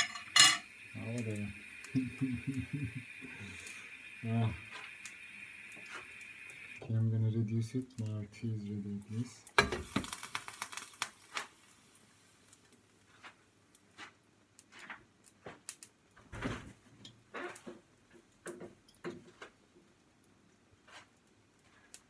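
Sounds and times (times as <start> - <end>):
soft knocks and rustles: 14.0 - 19.9.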